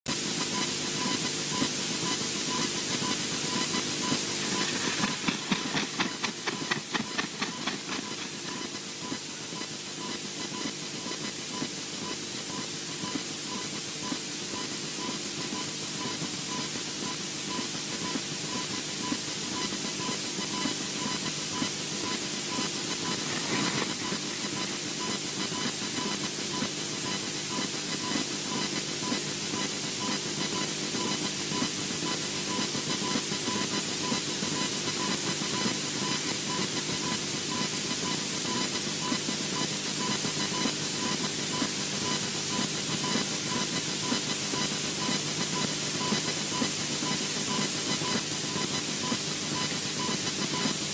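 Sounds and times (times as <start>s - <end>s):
microphone hiss: 2.4s - 9.4s
faint pulsing tone: 2.4s - 10.7s.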